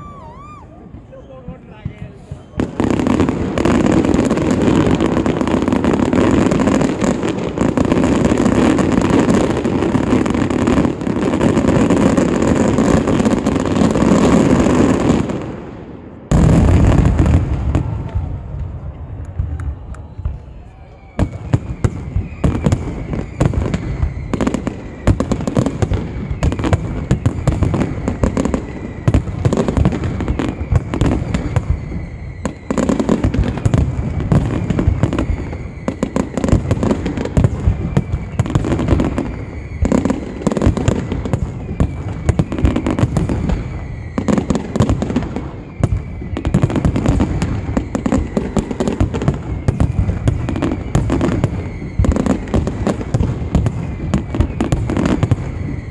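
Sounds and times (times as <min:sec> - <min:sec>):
fireworks bursts and crackling bangs: 0:00.0 - 0:55.9.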